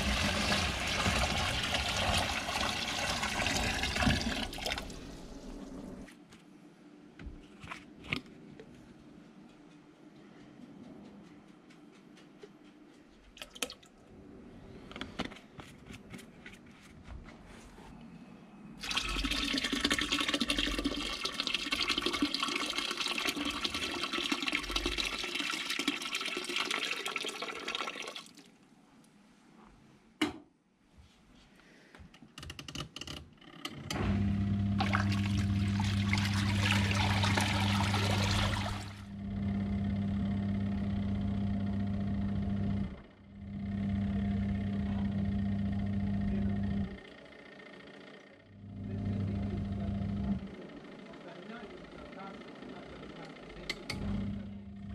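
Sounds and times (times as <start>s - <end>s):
water poured from a kettle: 0.0s - 6.0s, 18.8s - 28.5s, 34.8s - 39.0s
washing machine motor humming: 0.0s - 6.1s, 18.8s - 27.8s, 33.7s - 54.9s.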